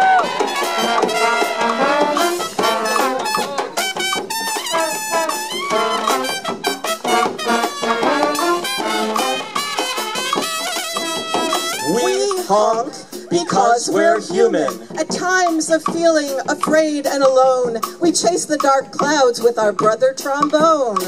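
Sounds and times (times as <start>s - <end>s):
trumpets and trombones: 0.0s - 13.2s
bass drum and snare: 0.0s - 21.0s
sousaphone: 0.2s - 12.8s.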